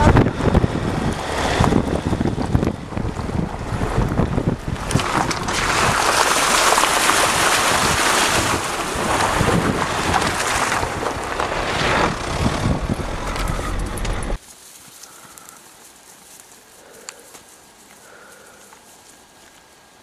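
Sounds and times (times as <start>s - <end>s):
tyre and road rumble: 0.0s - 14.4s
wind rushing over microphone: 0.0s - 14.4s.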